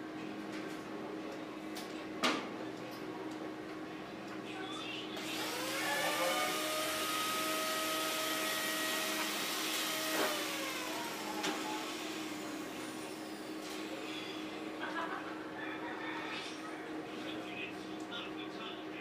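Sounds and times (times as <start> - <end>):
power tool motor whining: 5.2 - 13.4.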